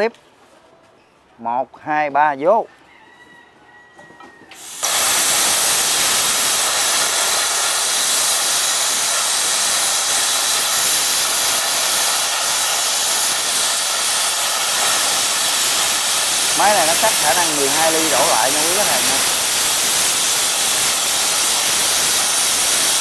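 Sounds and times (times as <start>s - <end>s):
plasma cutter hissing: 4.6s - 23.0s.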